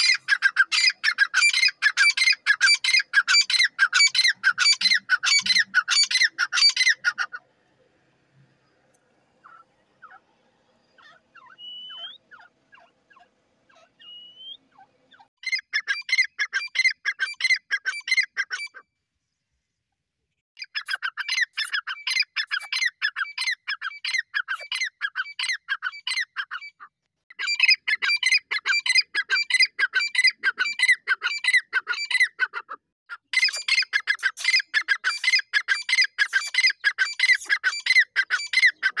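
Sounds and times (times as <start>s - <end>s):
francolin calls: 0.0s - 7.4s, 9.4s - 10.2s, 10.8s - 18.8s
short rising whistles: 9.5s - 12.3s, 14.0s - 14.7s.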